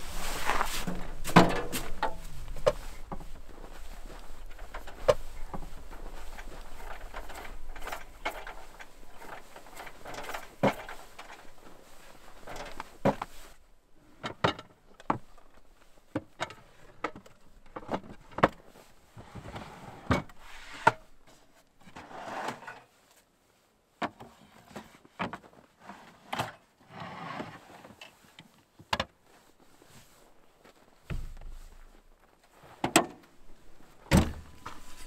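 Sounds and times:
rustling: 0.0s - 13.7s, 29.2s - 35.0s
camp kitchen gear knocking: 0.9s - 3.2s, 34.1s - 34.7s.

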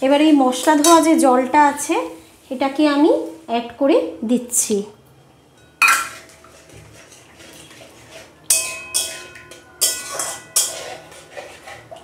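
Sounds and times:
spatula clanging against pan: 5.8s - 6.5s, 8.5s - 12.0s
metal spatula stirring in pan: 5.8s - 12.0s.

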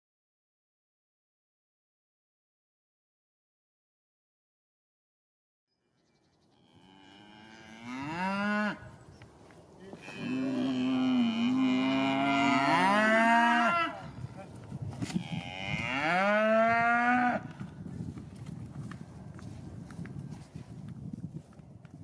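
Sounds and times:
cattle mooing: 6.5s - 8.9s, 9.9s - 14.1s, 15.1s - 17.5s.

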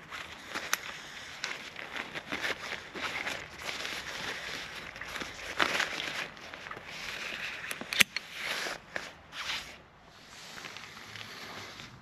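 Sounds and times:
fabric rustling: 0.0s - 12.0s
carabiner clicking: 7.4s - 8.6s.

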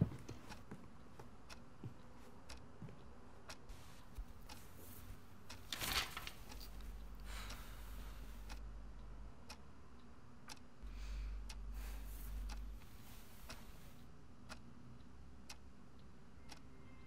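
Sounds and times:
clock ticking: 0.0s - 16.7s
fabric curtains rustling: 5.7s - 6.7s
low hum: 6.6s - 17.0s.

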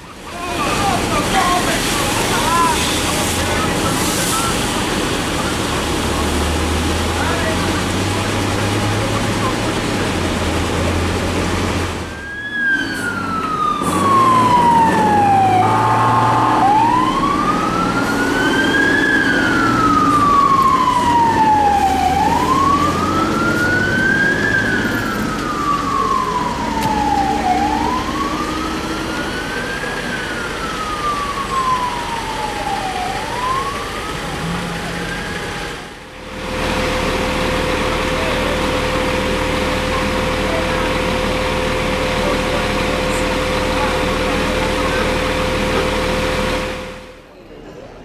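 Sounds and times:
fire engine siren wailing: 0.0s - 47.3s
heavy vehicle engine rumbling: 0.0s - 48.0s
horn blast: 13.8s - 17.1s.

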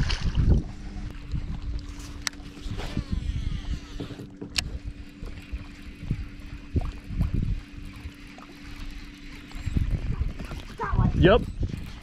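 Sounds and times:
boat engine hum: 0.0s - 12.0s
low thumps and knocks: 2.6s - 4.9s.

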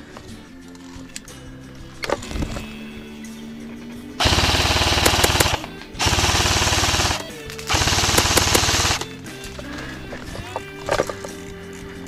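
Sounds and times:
airsoft rifle firing bursts: 4.2s - 9.2s.

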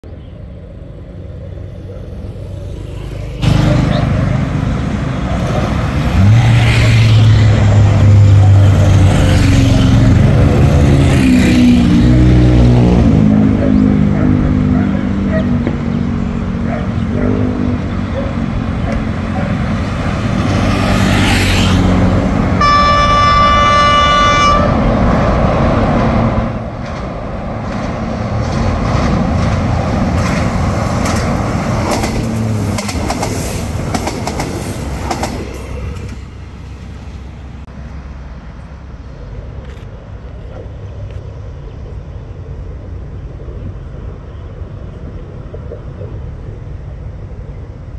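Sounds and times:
motorcycles riding past: 1.7s - 22.6s
vehicle horn: 22.6s - 24.9s.

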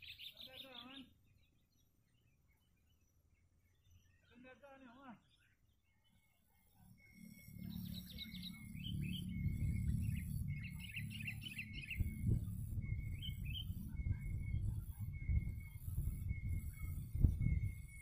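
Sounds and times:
birds chirping: 0.0s - 18.0s
low rumbling noise: 6.9s - 18.0s.

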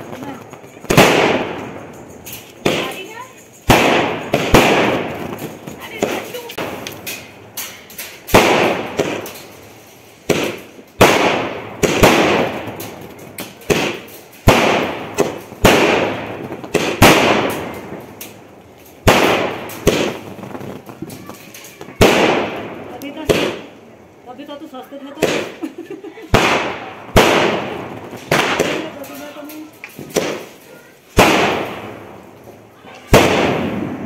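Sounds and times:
crackling fizz of fireworks bursting: 0.0s - 34.0s
fireworks bangs: 0.0s - 34.0s.

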